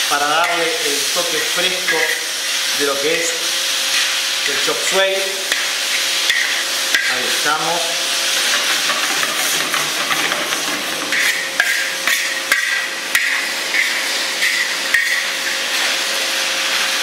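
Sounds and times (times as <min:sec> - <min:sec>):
food sizzling in wok: 0:00.0 - 0:17.0
spatula scraping wok: 0:00.3 - 0:17.0
spatula knocking on wok: 0:08.4 - 0:11.8.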